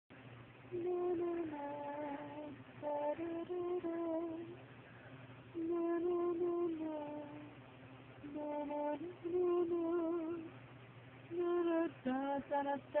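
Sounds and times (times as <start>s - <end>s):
person humming: 5.6s - 7.5s.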